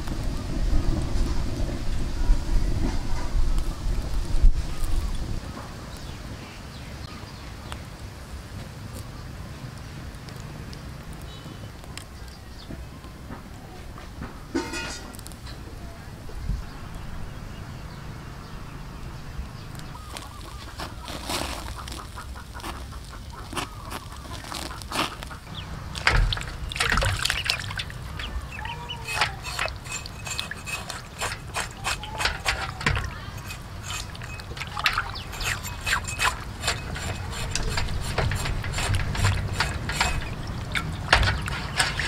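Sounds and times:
knife scraping and knocking: 0:20.7 - 0:42.0
water splashing in metal basin: 0:25.4 - 0:42.0.

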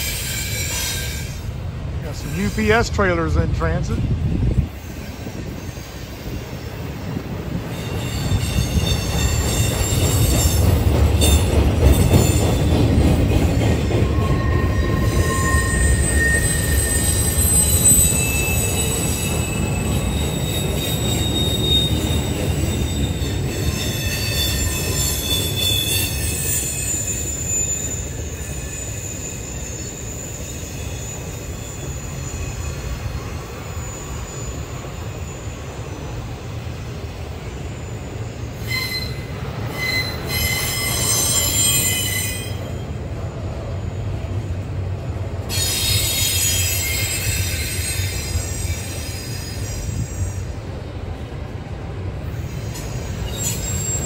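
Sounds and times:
wheel squeal: 0:00.0 - 0:01.5, 0:07.7 - 0:12.8, 0:13.9 - 0:35.9, 0:37.6 - 0:42.8, 0:45.5 - 0:50.5, 0:52.5 - 0:54.0
freight train wheels rumbling: 0:00.0 - 0:54.0.

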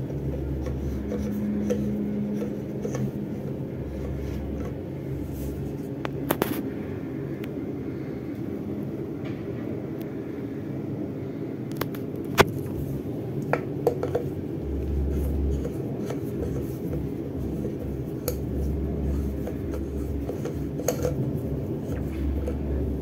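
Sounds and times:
low rumble: 0:12.6 - 0:23.0
metal tool scraping plastic: 0:15.1 - 0:22.8.

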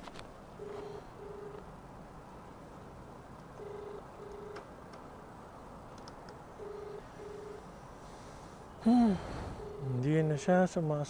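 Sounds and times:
phone ringback beeps: 0:00.6 - 0:01.6, 0:03.6 - 0:04.6, 0:06.6 - 0:07.7, 0:09.2 - 0:10.5.

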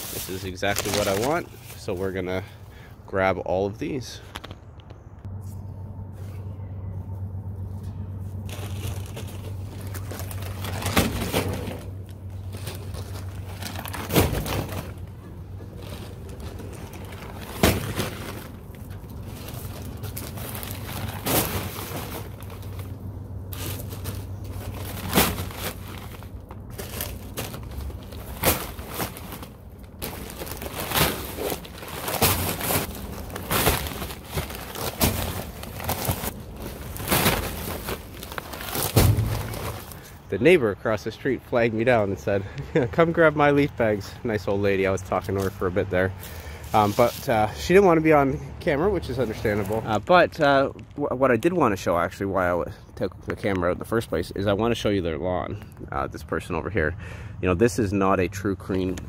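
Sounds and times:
paper bags crinkling: 0:00.0 - 0:02.5, 0:08.4 - 0:40.2, 0:49.0 - 0:50.2
bag thumping into trailer: 0:09.9 - 0:12.0, 0:12.6 - 0:15.1, 0:15.9 - 0:18.6, 0:20.4 - 0:22.8, 0:23.5 - 0:40.1.

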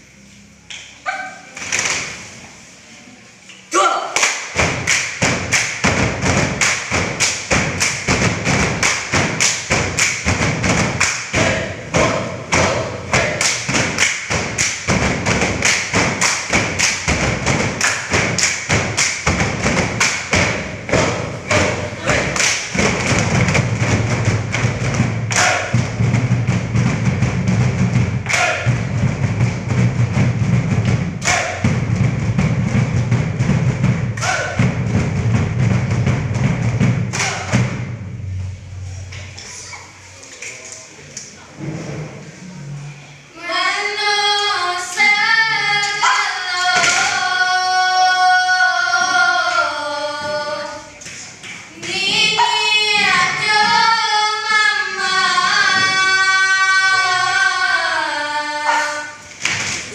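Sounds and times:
rhythmic slaps on trousers: 0:04.2 - 0:37.8.

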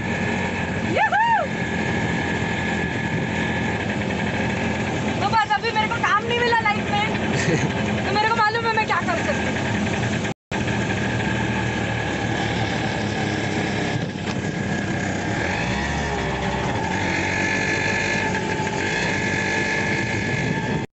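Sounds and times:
auto rickshaw engine running: 0:00.0 - 0:20.9.

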